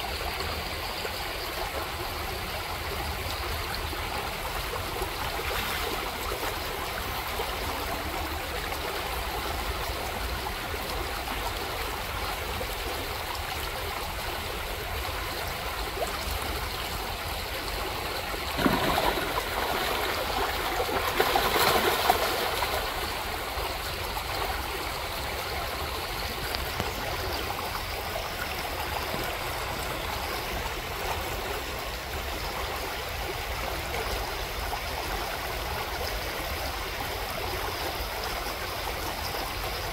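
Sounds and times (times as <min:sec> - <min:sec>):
creek running over stones: 0:00.0 - 0:39.9
fish splashing in shallows: 0:18.4 - 0:23.1.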